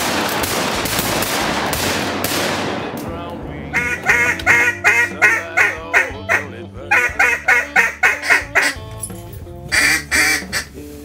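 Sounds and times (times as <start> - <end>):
duck quacking: 3.7 - 9.0, 9.7 - 10.8.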